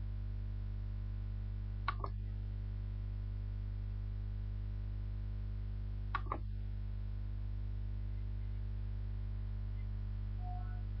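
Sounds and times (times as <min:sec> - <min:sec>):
electrical mains hum: 0:00.0 - 0:11.0
quick clicks: 0:01.9 - 0:02.2, 0:06.1 - 0:06.4.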